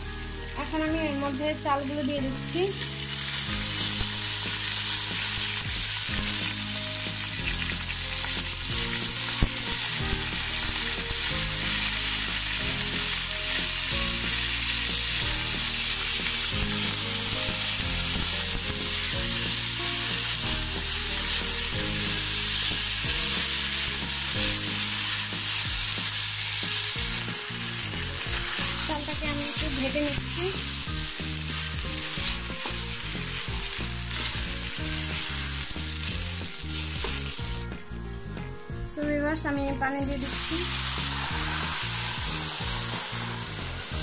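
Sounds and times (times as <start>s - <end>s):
rice sizzling in hot oil: 0.0s - 37.8s, 39.8s - 44.0s
wooden spatula turning rice: 3.2s - 37.6s.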